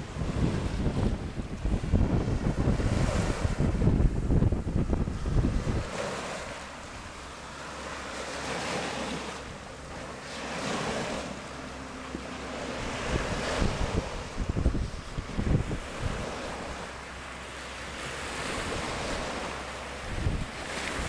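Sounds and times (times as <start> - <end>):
wind buffeting microphone: 0.0 - 7.4, 12.1 - 17.0, 18.0 - 21.0
small waves breaking on sand: 0.0 - 21.0.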